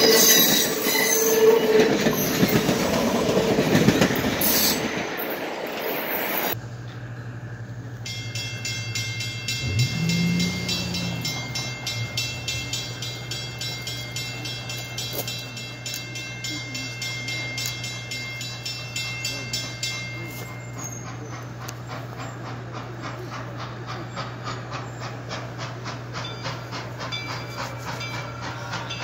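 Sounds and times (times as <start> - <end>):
low tone: 6.6 - 16.9
railroad crossing bell ringing: 7.8 - 22.2, 25.8 - 29.0.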